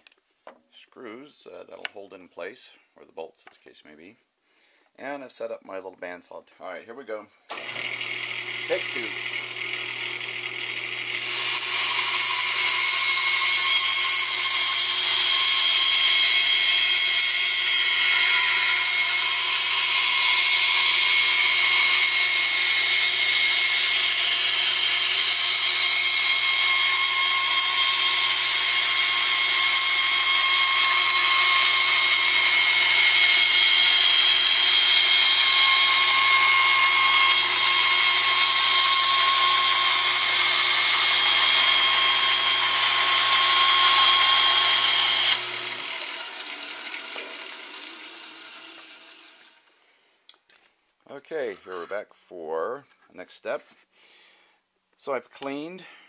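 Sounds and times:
bandsaw cutting plastic pipe: 0:07.5 - 0:49.8.

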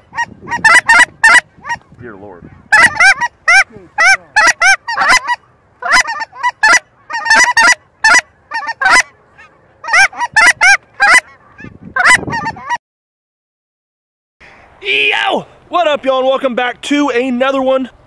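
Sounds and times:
geese honking: 0:00.0 - 0:12.8.

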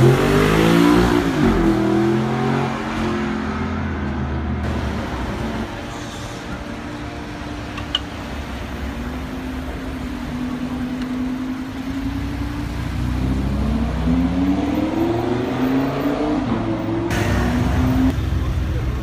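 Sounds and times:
car engine revving and accelerating: 0:00.0 - 0:05.7, 0:09.5 - 0:18.5.

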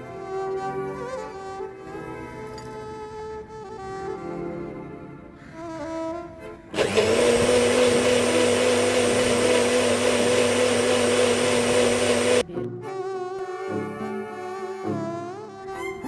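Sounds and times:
violin background music: 0:00.0 - 0:06.8, 0:12.4 - 0:16.0
small blender motor whine: 0:06.7 - 0:12.5.

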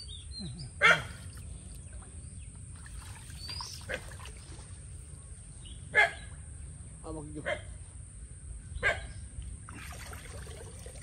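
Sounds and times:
dog barking: 0:00.8 - 0:01.2, 0:06.0 - 0:06.2.

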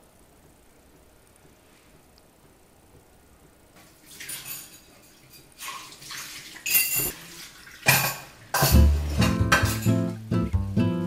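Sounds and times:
dishes clinking: 0:04.1 - 0:05.9, 0:06.5 - 0:10.2
water splashing in plastic basin: 0:05.6 - 0:06.7, 0:07.4 - 0:08.7
guitar music: 0:08.7 - 0:11.0.

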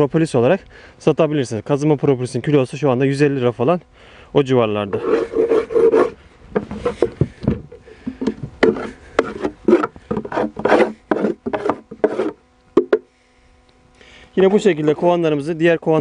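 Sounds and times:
wooden boxes scraping and knocking: 0:05.0 - 0:13.1.

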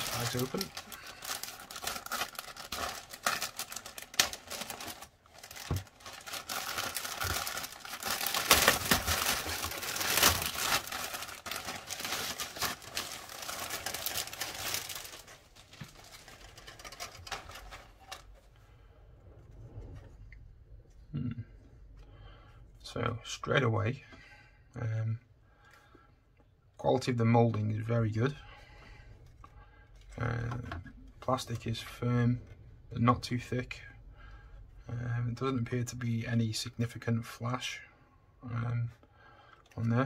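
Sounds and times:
plastic bag crinkling: 0:00.0 - 0:18.5.

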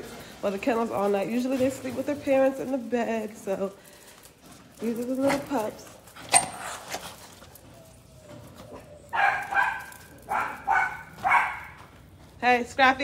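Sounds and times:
small dogs barking: 0:06.4 - 0:12.0.

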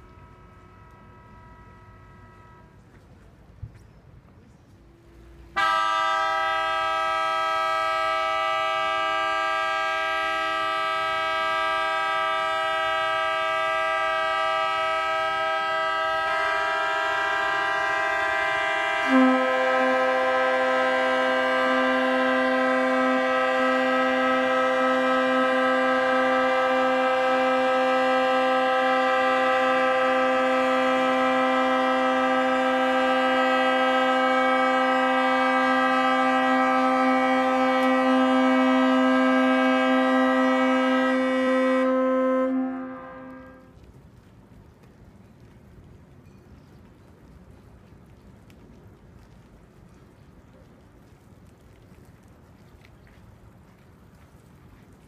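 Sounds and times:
barge horns blasting: 0:00.0 - 0:03.0, 0:05.0 - 0:43.8
lower louder horn: 0:00.0 - 0:03.1, 0:05.5 - 0:43.8.

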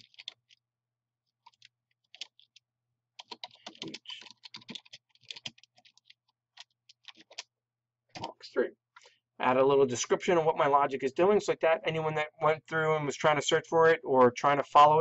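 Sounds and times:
computer keyboard typing: 0:00.0 - 0:00.6, 0:01.4 - 0:02.6, 0:03.2 - 0:07.5.

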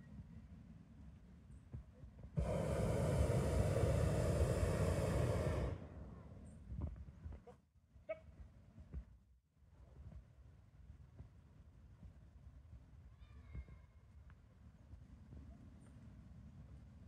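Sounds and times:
propane burner blast: 0:02.4 - 0:06.4.

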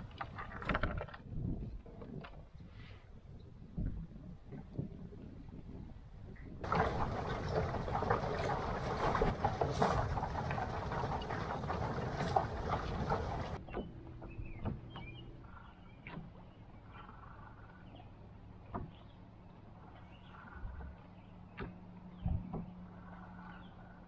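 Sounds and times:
loud rustling noise: 0:06.6 - 0:13.6
small waves lapping against hull: 0:06.6 - 0:14.0.

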